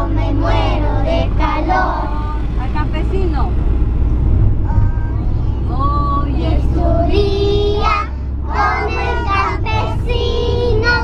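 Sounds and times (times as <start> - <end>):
children singing together: 0.0 - 2.4, 6.4 - 11.0
minibus engine and road rumble: 0.0 - 11.0.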